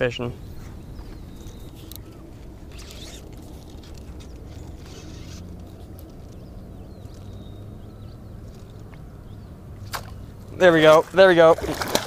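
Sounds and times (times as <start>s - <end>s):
faint bird chirps: 0.0s - 9.6s
wind and water rumble: 0.0s - 12.0s
fly line rustling: 0.5s - 7.8s, 8.4s - 9.1s.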